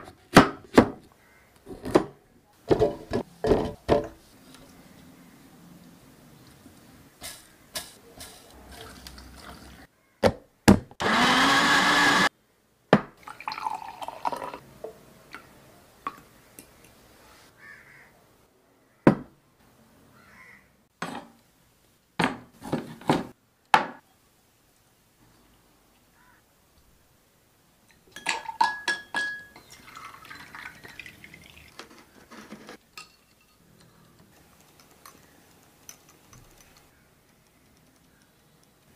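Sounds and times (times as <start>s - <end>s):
liquid pouring: 8.3s - 9.9s, 13.2s - 14.6s, 29.6s - 32.0s
blender motor: 11.0s - 12.3s.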